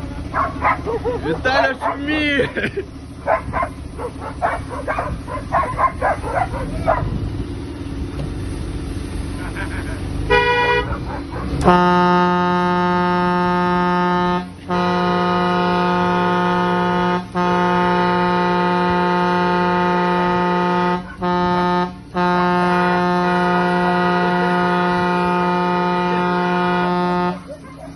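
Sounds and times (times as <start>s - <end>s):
vehicle horn blasts: 10.3s - 10.9s, 11.6s - 27.5s.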